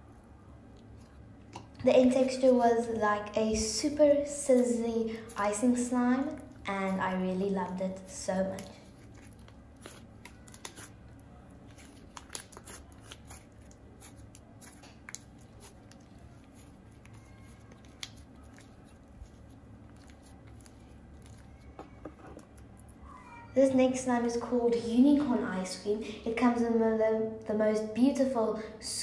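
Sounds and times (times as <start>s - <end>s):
slime crackling when kneaded: 4.5s - 23.0s.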